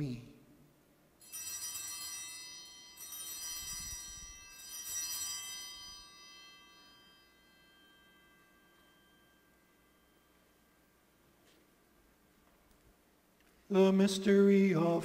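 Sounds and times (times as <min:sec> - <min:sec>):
altar bells ringing: 0:01.2 - 0:11.9.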